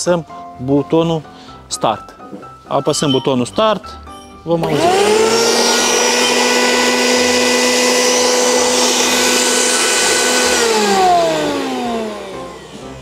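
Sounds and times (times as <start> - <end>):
grain mill motor whining: 4.6 - 13.0.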